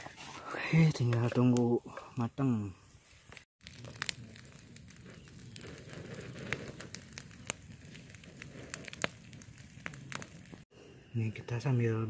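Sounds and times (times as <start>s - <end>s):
wood fire crackling: 0.0s - 10.7s.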